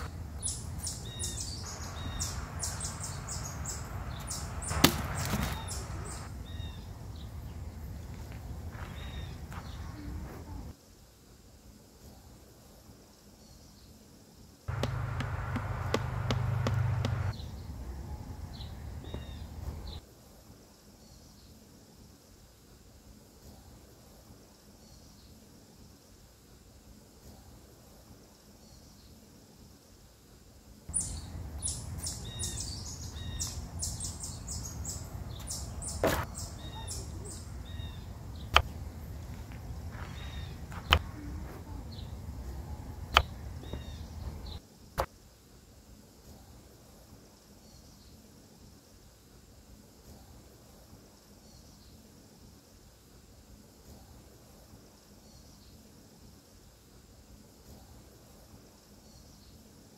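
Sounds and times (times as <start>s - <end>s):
high bird chirps: 0.0s - 6.9s, 30.9s - 38.7s
sharp fire pops: 4.6s - 6.3s.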